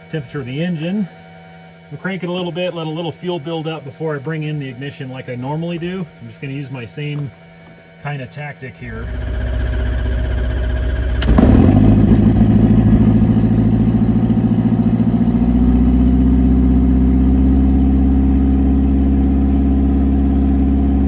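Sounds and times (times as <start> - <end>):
aircraft engine idling: 8.8 - 21.0
aircraft engine starter cranking: 9.0 - 13.2.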